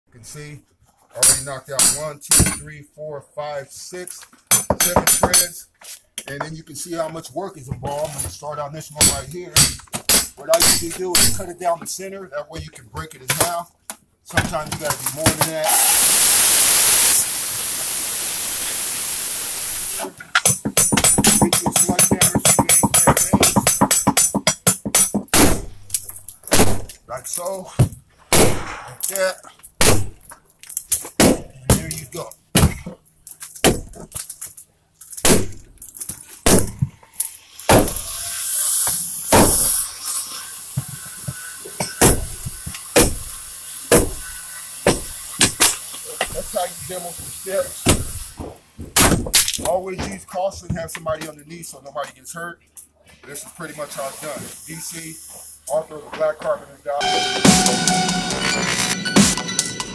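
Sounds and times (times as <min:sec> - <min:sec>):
sledgehammer striking wood: 0:09.0 - 0:11.4, 0:20.5 - 0:25.9, 0:26.5 - 0:26.9, 0:28.3 - 0:29.0, 0:29.8 - 0:30.2, 0:31.2 - 0:31.9, 0:32.5 - 0:33.0, 0:33.6 - 0:34.0, 0:35.2 - 0:35.7, 0:36.4 - 0:36.9, 0:37.7 - 0:38.0, 0:39.3 - 0:39.8, 0:41.8 - 0:45.8, 0:47.8 - 0:48.2, 0:48.9 - 0:49.6
hammer blows on wood: 0:20.6 - 0:25.8, 0:43.9 - 0:46.4.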